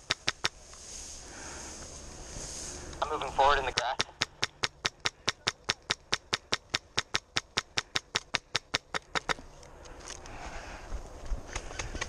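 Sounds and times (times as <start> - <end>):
grass rustling as person walks through: 0.5 - 3.7.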